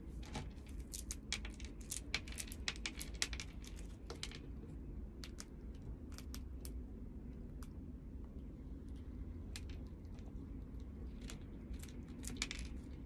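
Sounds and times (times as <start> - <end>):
low steady hum: 0.0 - 13.0
squirrel cracking seeds: 0.7 - 6.8, 9.4 - 13.0.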